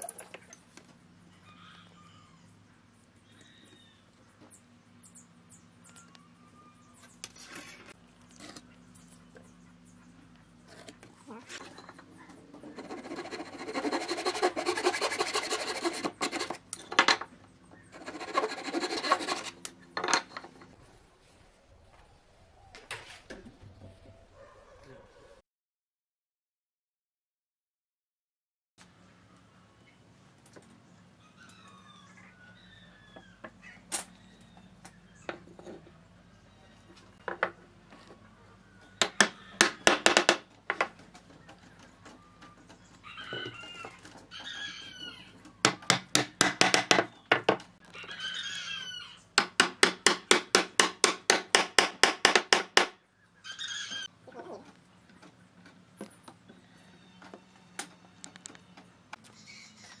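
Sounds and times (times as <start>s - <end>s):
wooden mallet knocking: 39.0s - 40.9s, 49.4s - 52.9s
birds calling: 53.0s - 60.0s.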